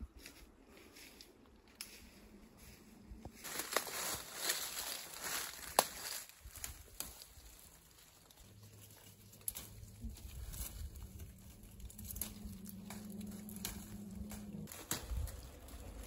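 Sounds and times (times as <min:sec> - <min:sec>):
foliage rustling: 0:00.2 - 0:16.0
leaves snapping as plucked: 0:05.2 - 0:07.5, 0:11.7 - 0:15.8
low steady hum: 0:07.4 - 0:16.0.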